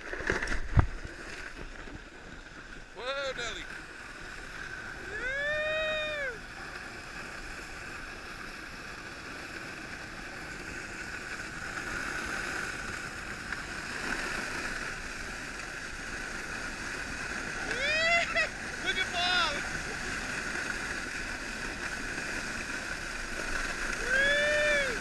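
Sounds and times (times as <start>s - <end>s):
sled scraping on snow: 0.0s - 25.0s
person yelling: 5.0s - 6.4s, 17.6s - 19.6s, 24.0s - 25.0s.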